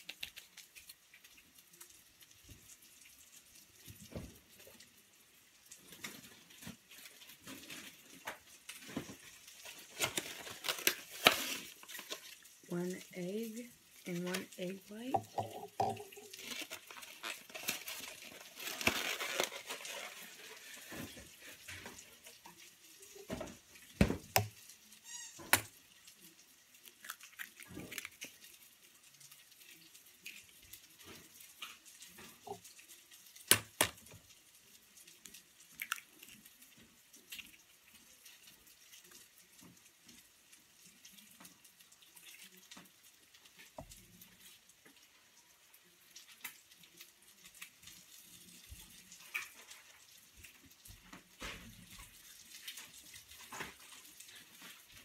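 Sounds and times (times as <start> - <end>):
liquid pouring into a bowl: 13.7 - 44.6.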